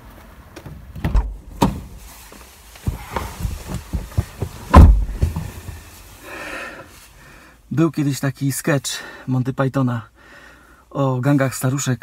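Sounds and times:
car door shutting thud: 0:01.0 - 0:02.0, 0:02.9 - 0:05.8.

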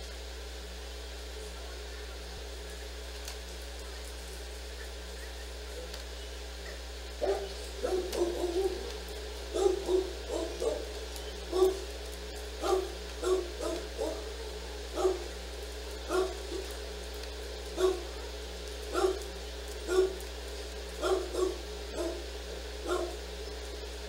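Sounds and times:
dog barking: 0:06.6 - 0:11.9, 0:12.6 - 0:15.3, 0:16.1 - 0:16.7, 0:17.8 - 0:19.3, 0:19.9 - 0:20.2, 0:21.0 - 0:23.2.

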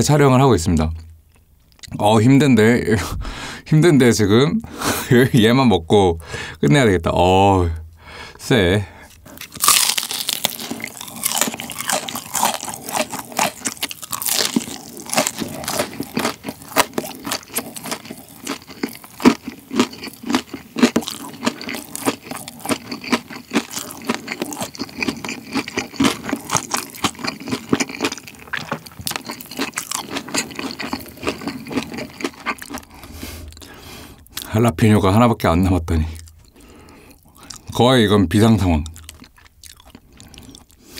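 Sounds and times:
crunchy chewing of crispy food: 0:09.0 - 0:34.5, 0:36.0 - 0:37.8, 0:38.6 - 0:40.9.

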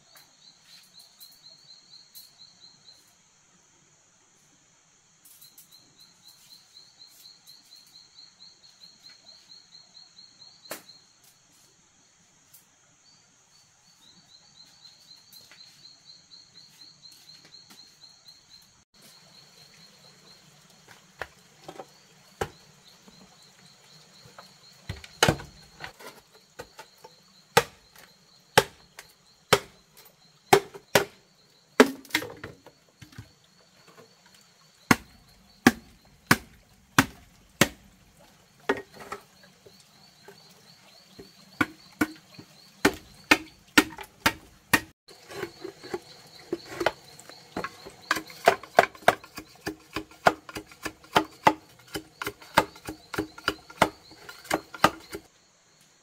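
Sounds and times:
insects chirping: 0:00.0 - 0:56.0
blade chopping bamboo: 0:24.9 - 0:25.9, 0:27.5 - 0:28.0, 0:28.6 - 0:29.8, 0:30.5 - 0:31.2, 0:31.8 - 0:33.2, 0:34.9 - 0:38.0, 0:41.6 - 0:42.2, 0:42.8 - 0:46.9, 0:47.6 - 0:55.3.

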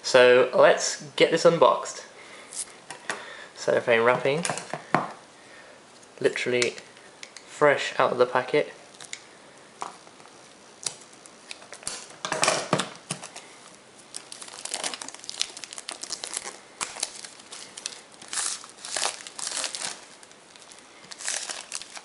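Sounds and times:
cellophane crinkling: 0:08.9 - 0:22.0.

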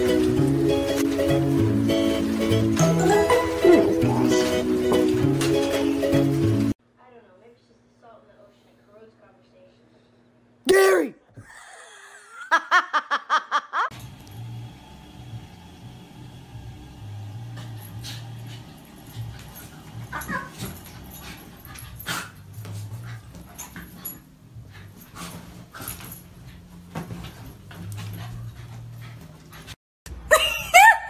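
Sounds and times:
pets knocking and scuffling: 0:00.0 - 0:06.7, 0:17.4 - 0:29.8
dog whining: 0:02.8 - 0:05.2.

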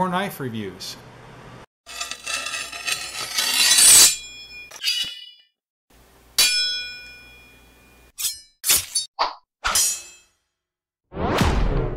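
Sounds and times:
ringing metallic clang: 0:06.4 - 0:08.4.

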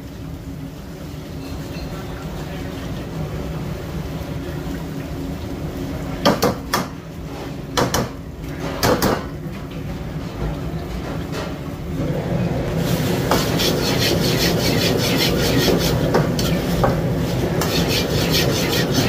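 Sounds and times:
gas burner rumble: 0:11.3 - 0:19.0.

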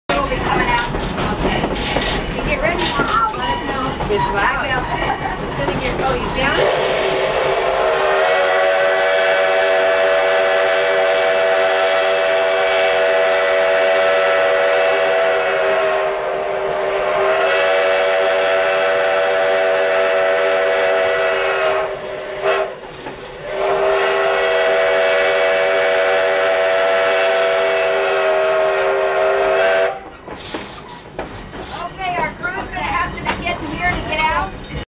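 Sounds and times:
steam locomotive whistle: 0:06.3 - 0:30.2.

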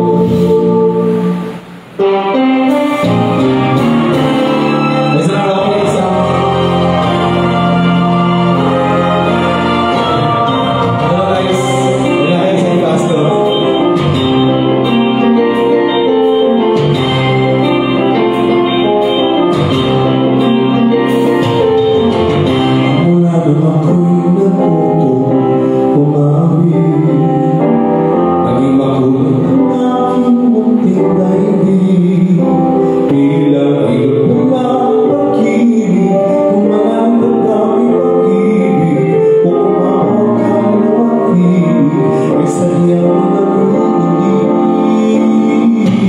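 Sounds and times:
man singing into microphone: 0:00.0 - 0:02.3, 0:04.6 - 0:15.6, 0:22.5 - 0:46.0
instrumental backing music: 0:00.0 - 0:46.0.

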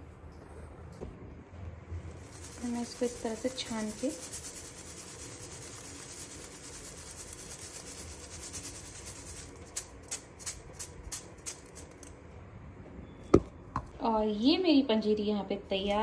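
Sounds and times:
sugar sifting through strainer: 0:02.1 - 0:12.0.

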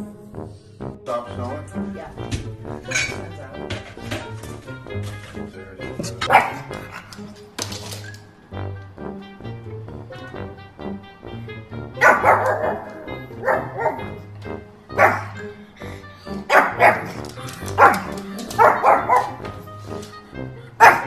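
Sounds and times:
background music: 0:00.0 - 0:21.0
dog barking: 0:06.2 - 0:07.1, 0:12.0 - 0:14.2, 0:14.9 - 0:15.5, 0:16.4 - 0:19.6, 0:20.8 - 0:21.0.

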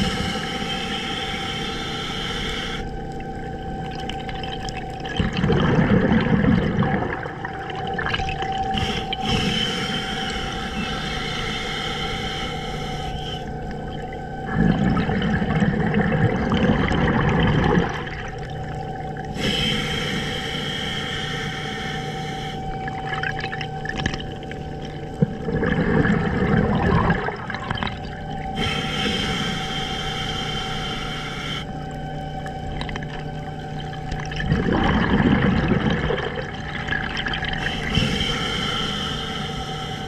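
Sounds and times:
diver breathing through regulator: 0:00.0 - 0:03.2, 0:08.6 - 0:15.8, 0:19.3 - 0:23.0, 0:28.4 - 0:31.8, 0:37.5 - 0:40.0
steady low hum: 0:00.0 - 0:40.0
bubbling exhalation: 0:03.9 - 0:11.2, 0:13.2 - 0:18.6, 0:22.8 - 0:29.4, 0:33.9 - 0:38.9.

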